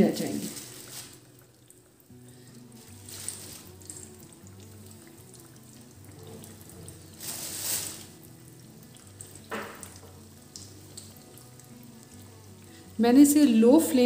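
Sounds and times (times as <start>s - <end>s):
chicken frying in oil: 0.0s - 13.5s
oil hissing: 2.1s - 13.0s.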